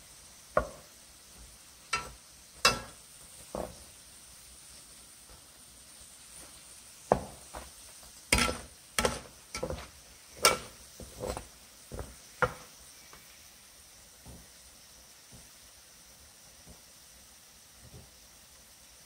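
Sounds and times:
frying oil hiss: 0.0 - 19.0
metal spatula clacking on pan: 1.9 - 3.0, 8.3 - 10.8.

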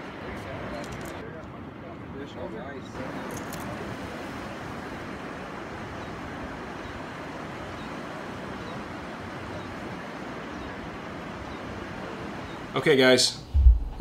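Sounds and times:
low surf: 0.0 - 14.0
wind rushing: 13.4 - 14.0.

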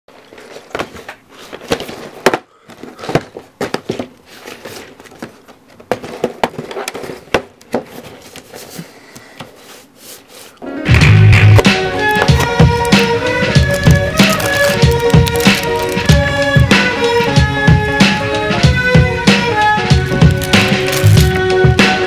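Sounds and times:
fingers tapping and scraping cardboard: 12.1 - 13.0, 13.6 - 17.4, 20.0 - 21.4.

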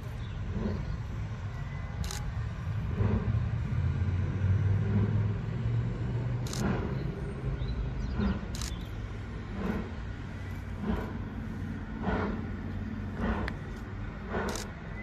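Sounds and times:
distant steam locomotive rumble: 0.0 - 15.0
sharp clicks: 6.4 - 6.9, 8.4 - 8.9.

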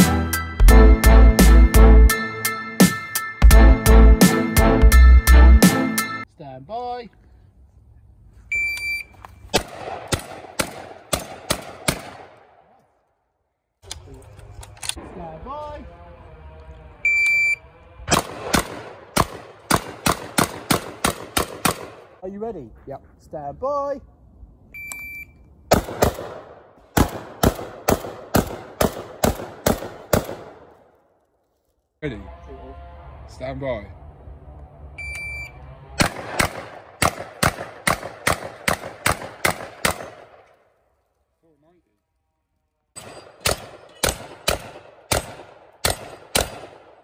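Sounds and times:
shotgun shots: 9.5 - 12.6, 18.1 - 22.2, 25.7 - 30.8, 36.0 - 40.5, 43.0 - 47.0.

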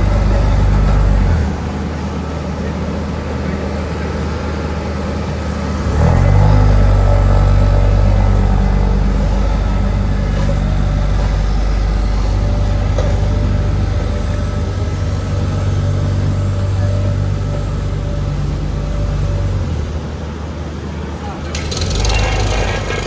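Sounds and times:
road roller engine hum: 0.0 - 23.0.

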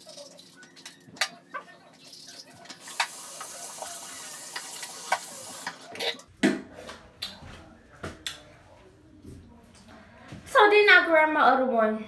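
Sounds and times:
faucet running into sink: 2.0 - 5.8.

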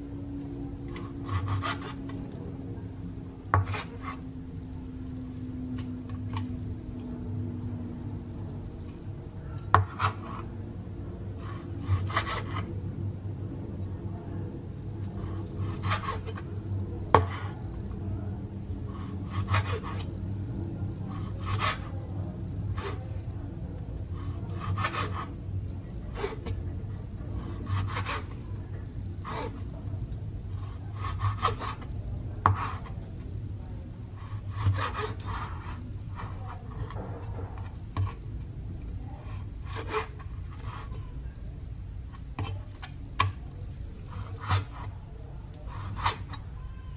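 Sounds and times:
knife slicing raw meat: 0.9 - 2.3, 15.2 - 16.6, 18.9 - 20.1, 21.0 - 22.0, 24.2 - 25.4, 27.3 - 28.4, 30.5 - 33.0, 34.2 - 37.0, 44.0 - 44.9, 45.6 - 46.5.

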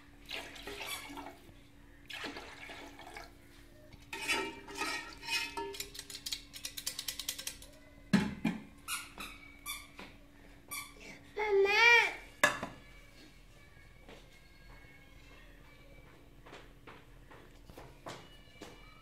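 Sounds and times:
water pouring into a pot: 0.2 - 1.4, 2.1 - 3.3
knock against a metal pot: 8.1 - 8.7, 12.4 - 12.8.

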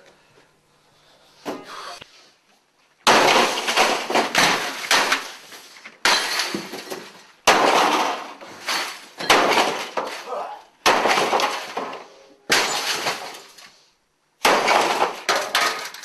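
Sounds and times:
computer equipment smashing: 3.0 - 5.4, 6.0 - 10.3, 10.9 - 13.6, 14.4 - 16.0.

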